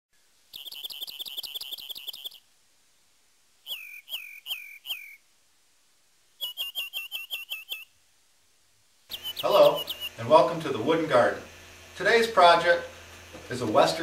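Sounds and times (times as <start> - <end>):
songbird singing whistled phrases: 0.5 - 2.5, 3.6 - 5.2, 6.4 - 7.9, 9.1 - 10.2.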